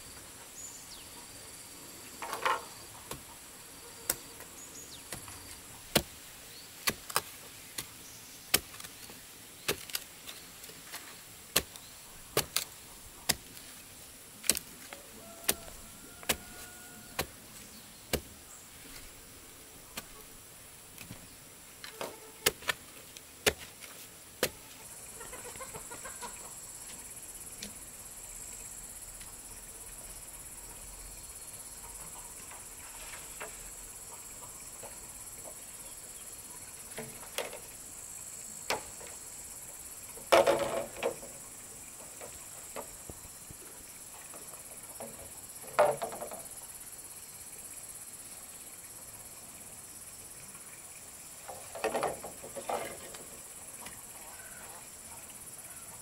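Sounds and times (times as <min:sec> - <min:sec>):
digging bar striking hard soil: 0:05.0 - 0:13.7, 0:14.4 - 0:17.4, 0:18.1 - 0:19.1, 0:19.9 - 0:20.3, 0:21.8 - 0:24.6
high insect drone: 0:14.8 - 0:18.6, 0:24.5 - 0:56.0.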